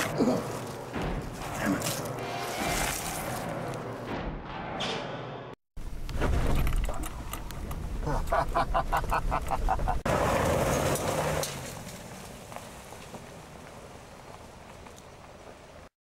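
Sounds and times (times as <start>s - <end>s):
tyres crunching on gravel: 0.0s - 3.9s, 9.6s - 15.9s
van engine driving off: 10.1s - 13.0s.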